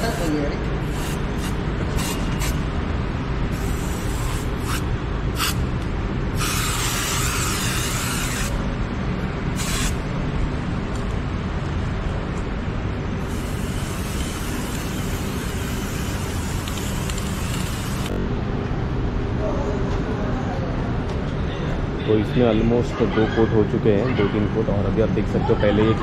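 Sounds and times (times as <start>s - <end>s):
steady low rumble: 0.0s - 22.1s
spray-paint can hissing: 0.8s - 2.6s, 3.5s - 5.6s, 6.4s - 8.6s, 9.6s - 10.0s, 13.2s - 18.1s.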